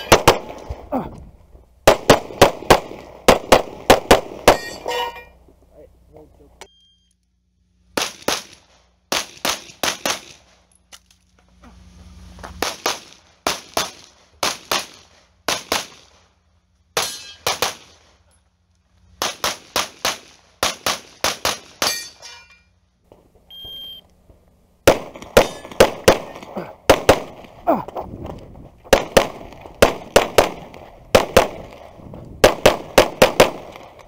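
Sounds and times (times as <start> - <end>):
pistol shots: 0.0 - 0.8, 1.8 - 4.9, 8.0 - 10.5, 12.6 - 16.1, 17.0 - 18.0, 19.2 - 22.0, 24.8 - 27.6, 28.9 - 34.0
shot timer beep: 6.6 - 7.2, 23.5 - 24.0.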